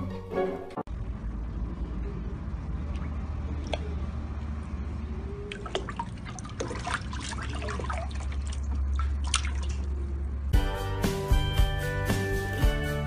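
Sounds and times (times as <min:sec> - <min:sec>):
low steady hum: 0:00.9 - 0:10.6
water splashing in a tub: 0:02.7 - 0:04.4, 0:05.4 - 0:10.2.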